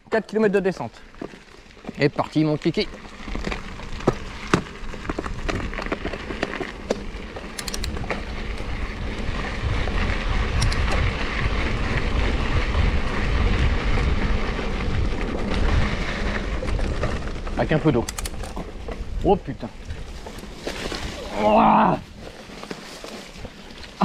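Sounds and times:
bike tyres rolling on dirt: 0.0 - 24.0
bike clicks and rattles: 0.1 - 21.2, 22.2 - 24.0
wind buffeting microphone: 7.2 - 22.3.

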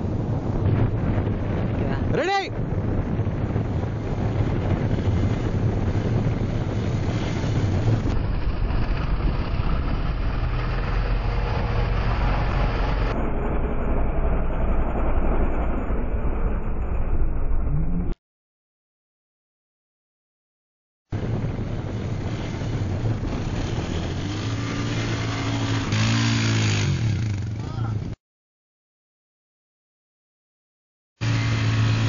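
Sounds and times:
quad bike engine under load: 21.9 - 27.8, 31.2 - 32.0.

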